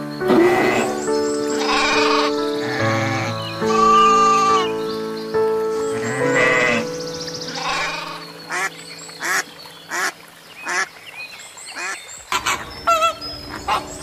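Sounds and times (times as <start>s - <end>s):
soft background music: 0.0s - 11.2s
ducks quacking: 0.3s - 4.7s, 5.9s - 11.0s, 11.7s - 14.0s.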